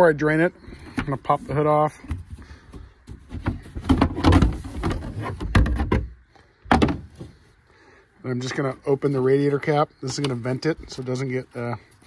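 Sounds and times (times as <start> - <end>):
plastic panel knocks and rattles: 3.1 - 7.3.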